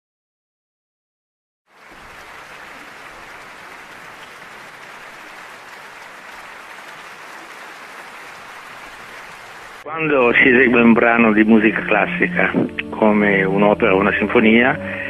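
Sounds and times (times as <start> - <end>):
audience applauding: 1.7 - 9.9.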